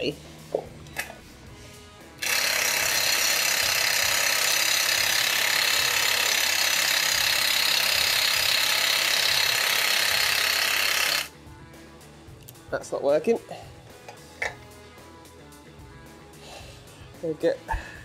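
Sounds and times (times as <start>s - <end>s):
impact wrench hammering: 2.2s - 11.3s.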